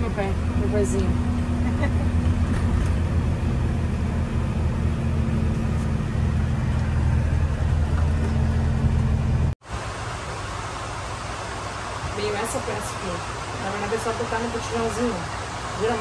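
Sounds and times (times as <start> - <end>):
truck engine and road noise: 0.0 - 16.0.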